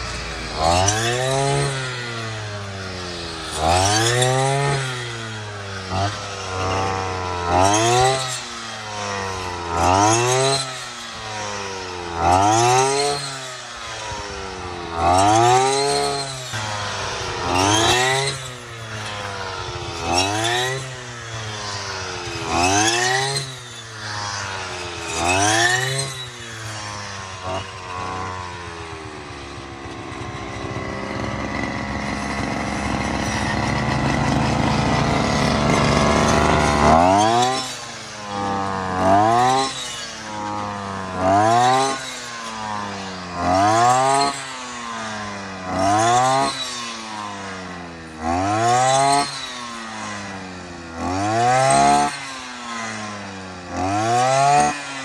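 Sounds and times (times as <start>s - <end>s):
brush cutter engine revving: 0.0s - 55.0s.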